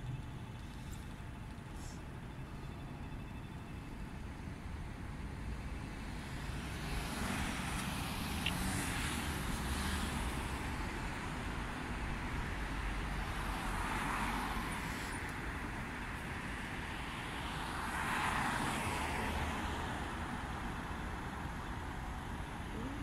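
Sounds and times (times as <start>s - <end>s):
passing cars rumbling: 4.6s - 23.0s.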